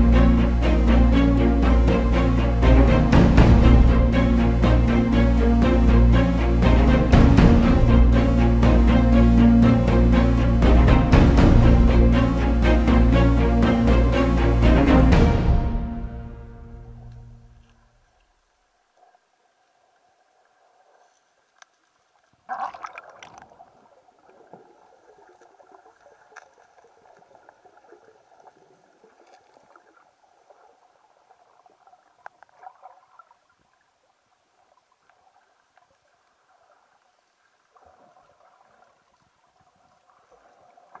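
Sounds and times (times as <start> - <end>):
muffled underwater water: 16.8 - 41.0
water gurgling surge: 22.4 - 30.8.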